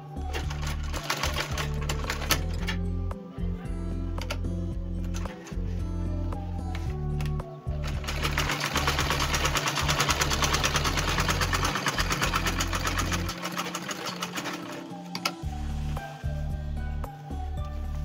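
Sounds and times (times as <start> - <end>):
sewing machine stitching: 0.3 - 2.8, 7.8 - 15.3.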